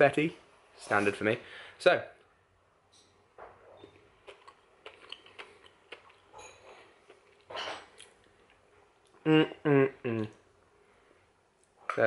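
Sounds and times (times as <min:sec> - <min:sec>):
man chewing cake: 0:03.8 - 0:09.2.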